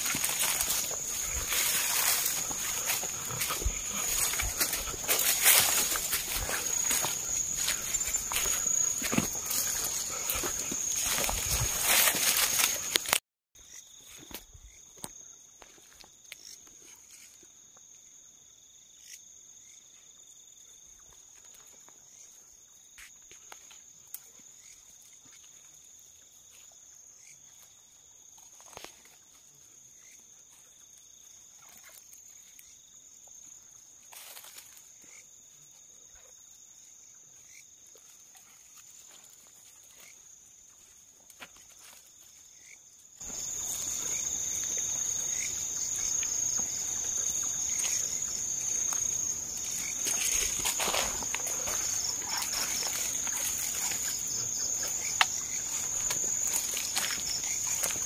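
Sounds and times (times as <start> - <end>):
clicks and rustles in undergrowth: 0.0 - 13.2, 28.3 - 30.2, 34.0 - 35.0, 38.0 - 58.0
night insects trilling: 0.0 - 58.0.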